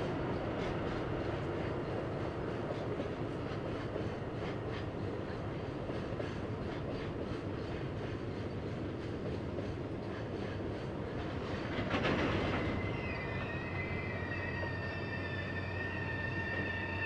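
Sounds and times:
train clatter: 0.0s - 13.5s
freight train rumbling past: 0.0s - 17.0s
high wheel squeal: 12.2s - 17.0s.

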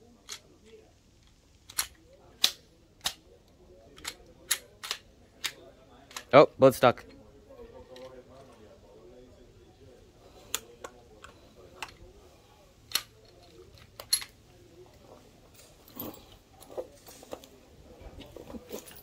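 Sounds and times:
pistol metallic clicks: 1.6s - 3.2s, 4.0s - 6.3s.

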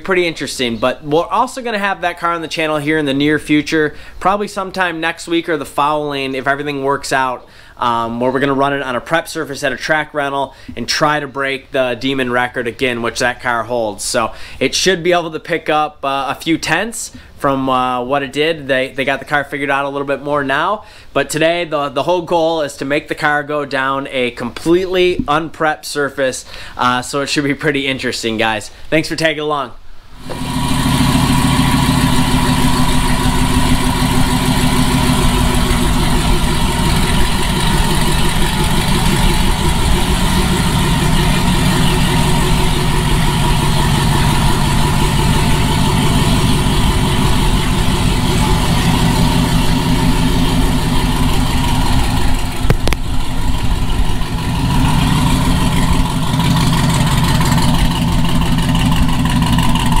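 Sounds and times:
car engine idling: 30.1s - 60.0s.

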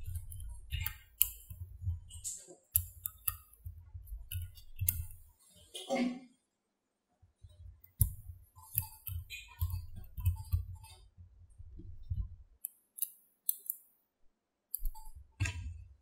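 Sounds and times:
magnetic balls clicking: 0.0s - 5.4s, 7.8s - 13.9s, 14.8s - 15.7s.

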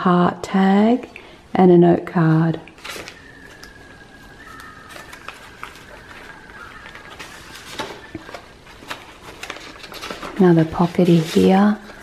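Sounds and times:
paper pages turning: 2.7s - 3.8s, 4.4s - 12.0s.

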